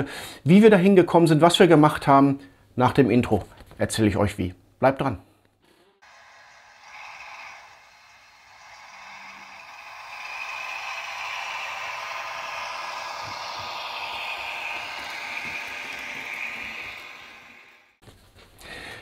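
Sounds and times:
model trains running on track: 6.1s - 18.0s.

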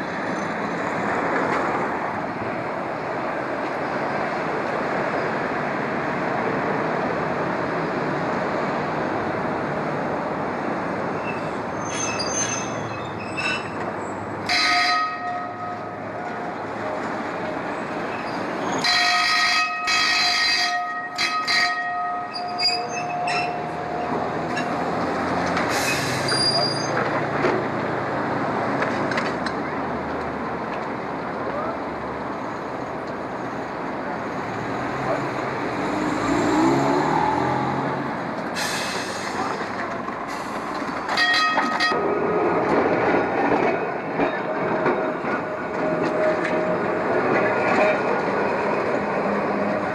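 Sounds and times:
street traffic: 0.0s - 49.9s
streetcar rolling on rails: 0.0s - 49.9s
wheels squealing on curved track: 11.1s - 13.8s, 22.2s - 24.2s, 25.7s - 27.1s.

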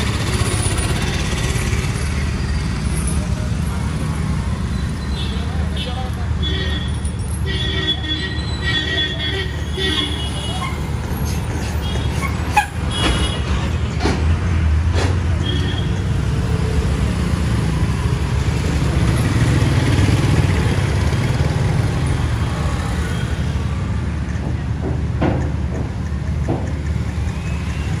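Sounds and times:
scooters and motorcycles passing: 0.0s - 5.2s, 16.1s - 24.4s.

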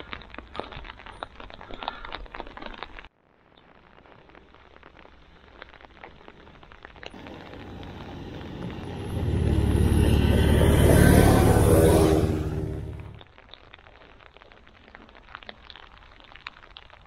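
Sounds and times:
tyres hissing on wet road: 7.2s - 13.2s
vehicle engine hum: 7.2s - 13.2s.

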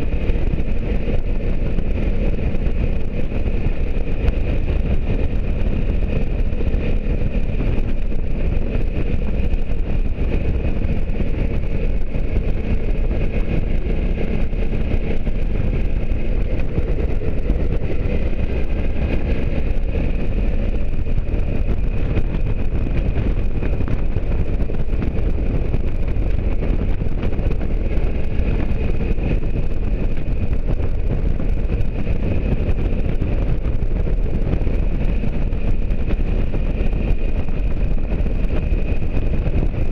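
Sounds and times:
motorcycle engine drone: 0.0s - 39.9s
wind on microphone: 0.0s - 39.9s.

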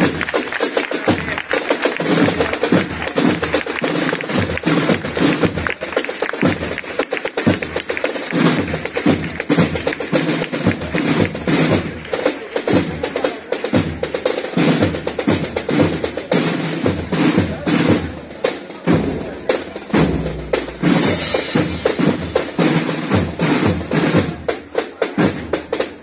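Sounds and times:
snare drum rolls: 0.0s - 26.0s
bass drum beats: 18.9s - 26.0s.

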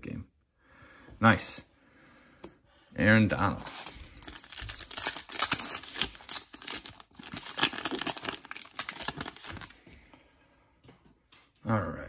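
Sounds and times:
foil wrapper crinkling and tearing: 3.6s - 9.8s.

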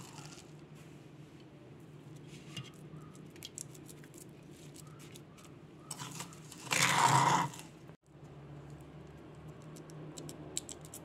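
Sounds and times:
spoon scraping stone mortar: 5.8s - 7.7s.

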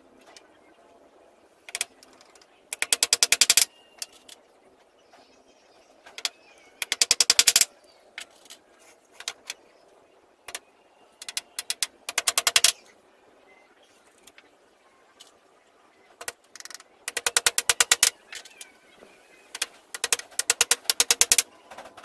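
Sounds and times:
hand tool clicking: 2.7s - 4.2s, 6.2s - 7.7s, 11.2s - 12.8s, 16.2s - 18.6s, 19.6s - 21.4s.

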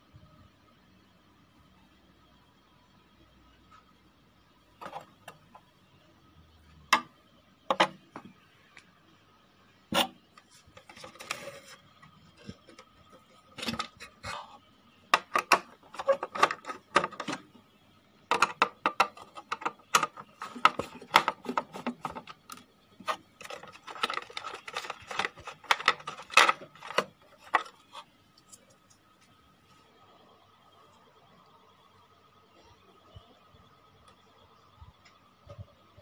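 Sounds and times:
metal and plastic parts handled: 4.8s - 5.6s, 7.7s - 8.3s, 9.9s - 14.5s, 15.2s - 17.5s, 18.3s - 29.0s
screwdriver clicking and scraping: 18.3s - 28.6s.

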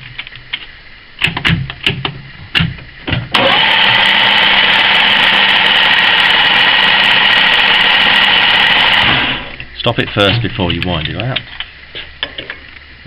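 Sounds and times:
lathe running with whine: 3.4s - 9.6s.

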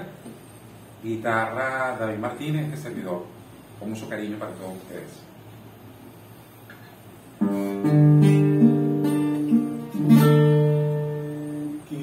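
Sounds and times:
acoustic guitar waltz: 7.3s - 12.0s.

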